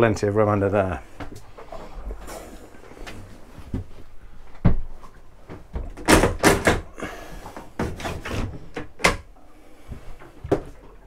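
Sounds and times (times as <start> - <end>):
knocks and thumps of fittings: 5.5 - 9.3.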